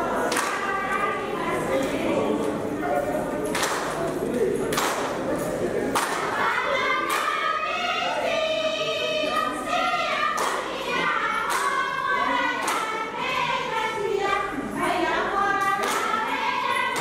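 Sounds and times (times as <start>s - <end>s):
women singing in unison: 0.0s - 2.6s, 6.1s - 17.0s.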